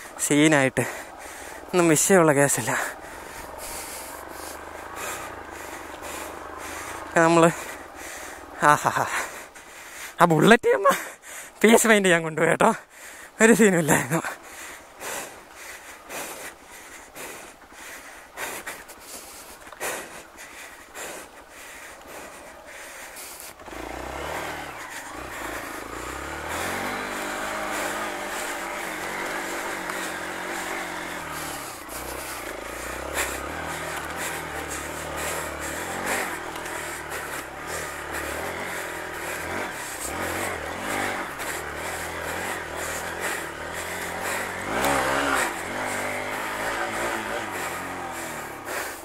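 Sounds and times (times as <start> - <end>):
motorcycle engine revving: 0.0 - 10.1, 22.0 - 49.0.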